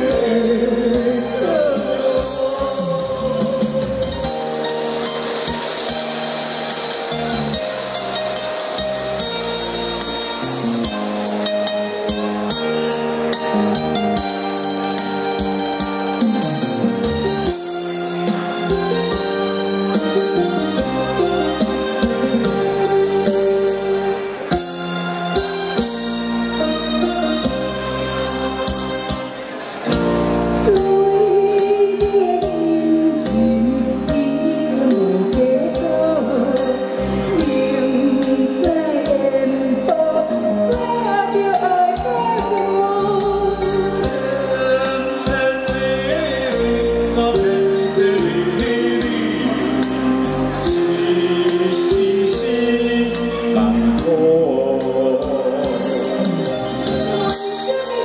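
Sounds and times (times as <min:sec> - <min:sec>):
man and woman singing duet: 0:00.0 - 0:04.7, 0:30.6 - 0:58.0
pop backing music with beat: 0:00.0 - 0:58.0.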